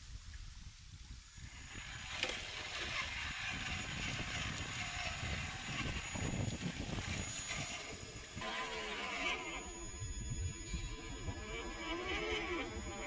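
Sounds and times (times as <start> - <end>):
small electric motor whirring: 1.2 - 13.0
tyres scraping over rock: 1.5 - 9.7.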